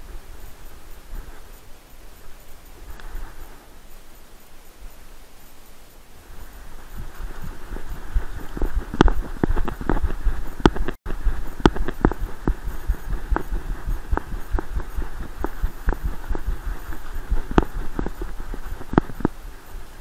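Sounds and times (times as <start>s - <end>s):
muffled thumping and knocking: 7.0s - 19.4s.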